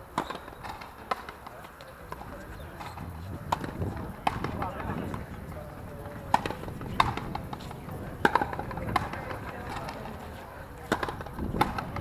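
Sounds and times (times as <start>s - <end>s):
rubber ball struck by rackets: 2.8s - 5.2s, 6.3s - 10.1s, 10.9s - 12.0s.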